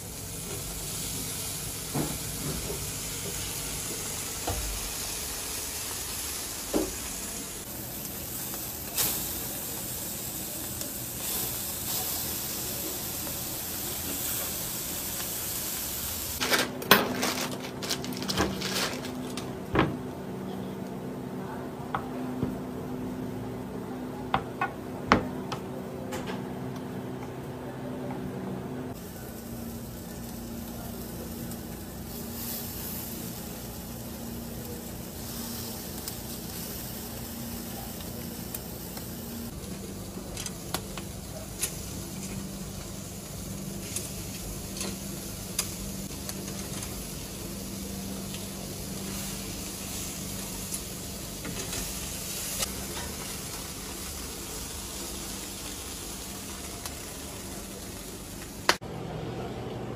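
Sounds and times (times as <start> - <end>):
food sizzling on a grill: 0.0 - 16.4, 28.9 - 58.8.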